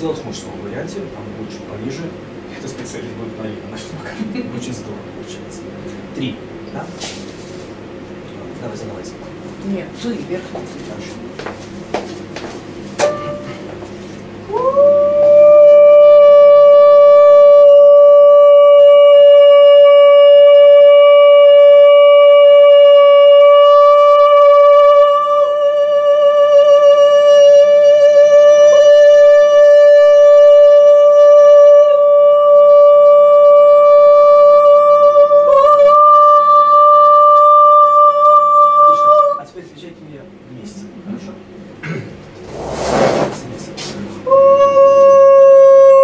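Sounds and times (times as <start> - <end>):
women singing long note: 14.5 - 39.4, 44.2 - 46.0.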